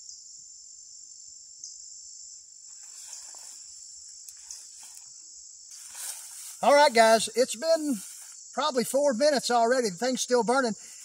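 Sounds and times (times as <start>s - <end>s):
crickets trilling: 0.0s - 11.0s
faint rustle: 2.6s - 8.5s.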